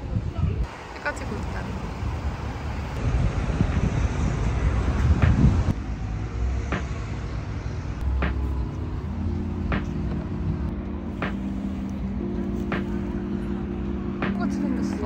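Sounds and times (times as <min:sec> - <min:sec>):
low rumbling noise: 0:00.0 - 0:15.0
background music with soft beat: 0:03.6 - 0:15.0.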